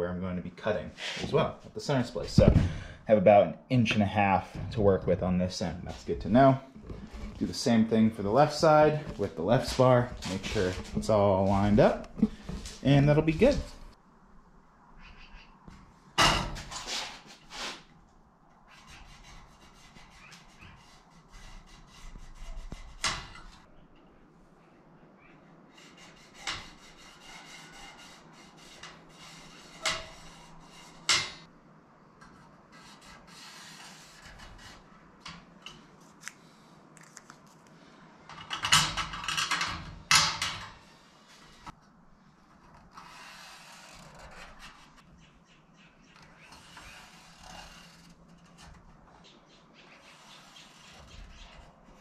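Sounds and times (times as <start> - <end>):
soft rubbing: 5.8 - 14.0.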